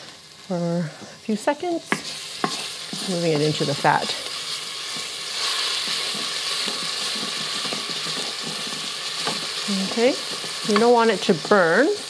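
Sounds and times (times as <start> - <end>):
garlic sizzling in oil: 0.0 - 12.0
wooden spoon scraping a pot: 1.9 - 10.9.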